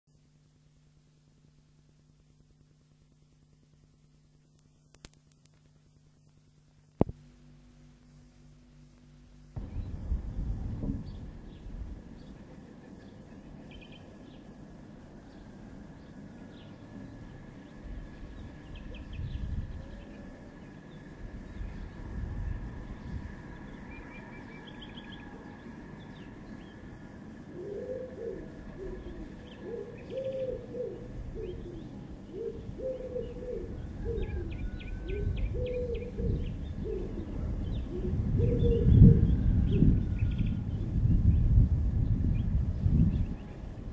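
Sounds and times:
small birds chirping: 0:09.6 - 0:43.9
dove cooing: 0:27.4 - 0:40.2.

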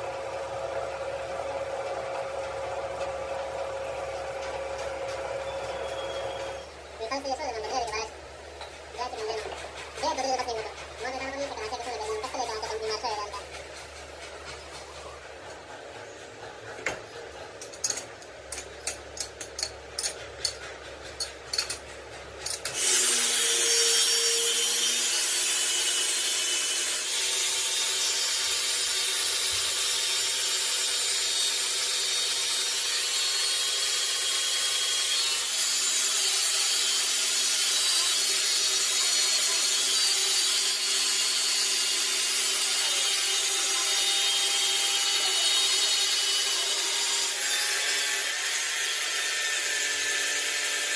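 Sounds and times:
power tool grinding metal: 0:17.7 - 0:50.9.

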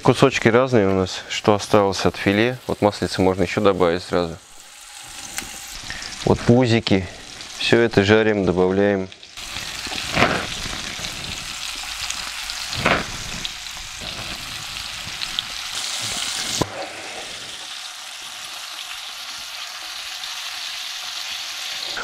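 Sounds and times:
fish frying in oil sizzling: 0:01.0 - 0:08.2, 0:09.1 - 0:22.0
bumps in frying pan: 0:09.4 - 0:16.7.

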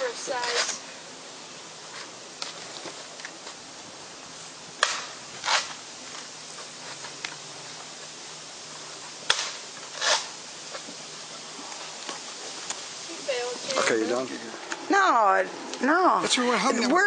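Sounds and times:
faint steady hum: 0:00.0 - 0:17.0
rough burst: 0:03.7 - 0:06.9, 0:08.2 - 0:13.5
sharp cracks: 0:04.8 - 0:06.4, 0:09.2 - 0:11.0.

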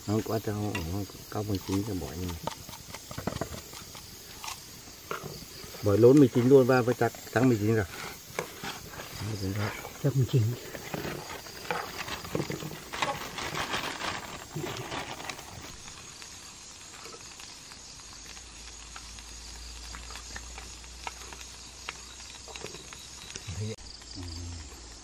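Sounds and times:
food sizzling in a wok: 0:00.0 - 0:25.0
chopsticks scraping a pan: 0:00.6 - 0:15.6.

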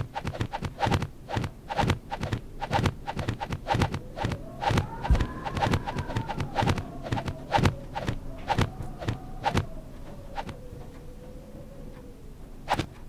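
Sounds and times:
sharp clicks and taps: 0:00.0 - 0:09.7
wavering tone sliding down: 0:00.0 - 0:12.8.

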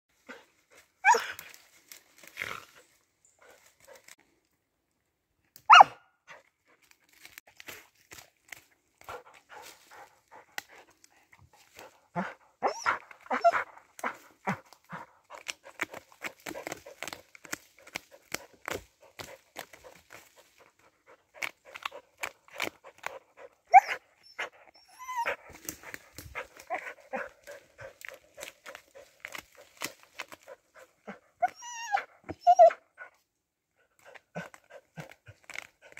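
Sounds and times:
sharp sounds from dog: 0:09.0 - 0:32.8.

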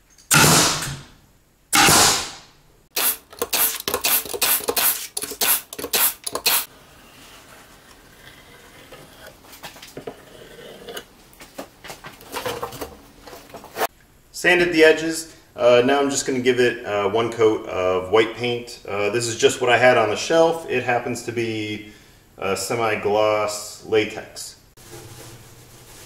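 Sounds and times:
loud noise bursts: 0:00.3 - 0:01.1, 0:01.7 - 0:03.2
nail gun shots into plywood: 0:00.3 - 0:01.1, 0:01.8 - 0:06.6.

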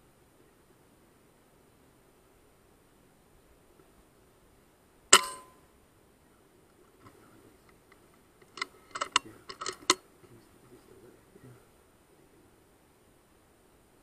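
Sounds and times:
metallic clicks of rifle: 0:07.0 - 0:10.0.

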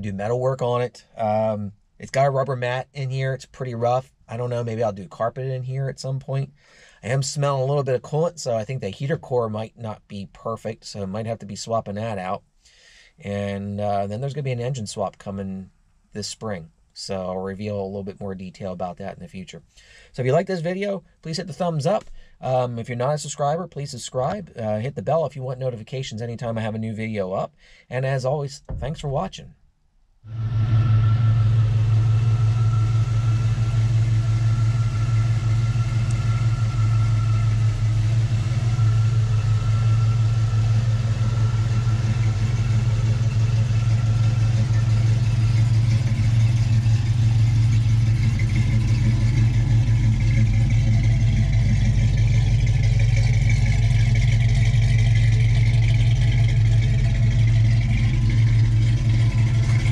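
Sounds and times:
car engine idling: 0:30.3 - 0:59.9.

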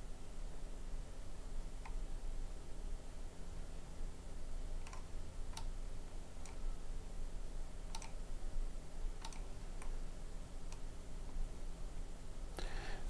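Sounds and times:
faint low hum: 0:00.0 - 0:13.0
computer mouse clicking: 0:04.8 - 0:05.8, 0:06.4 - 0:06.6, 0:07.9 - 0:08.2, 0:09.2 - 0:10.0.

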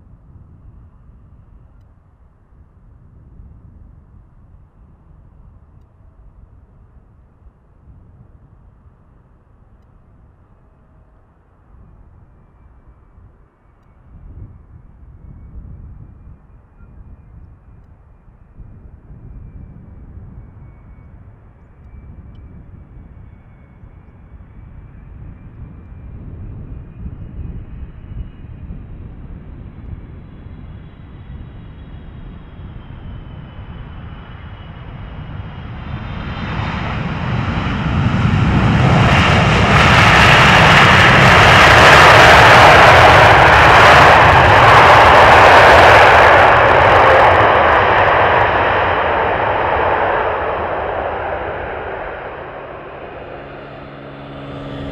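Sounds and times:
jet engine rumble with fan whine: 0:00.0 - 0:54.9
jet engine reverse thrust roar: 0:18.6 - 0:54.9.

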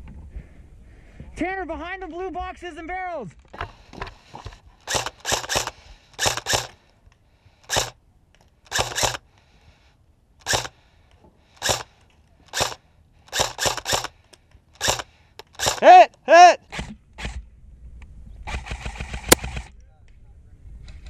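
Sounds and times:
airsoft rifle shots: 0:04.4 - 0:06.8, 0:07.6 - 0:08.0, 0:08.7 - 0:09.2, 0:10.4 - 0:10.8, 0:11.6 - 0:14.2, 0:14.8 - 0:16.1.

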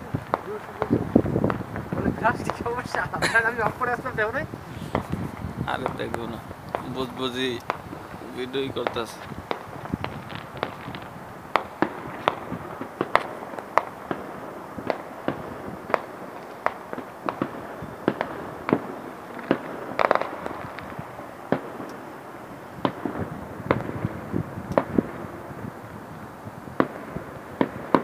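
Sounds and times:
background hiss: 0:00.0 - 0:28.0
firecrackers banging: 0:00.0 - 0:28.0.

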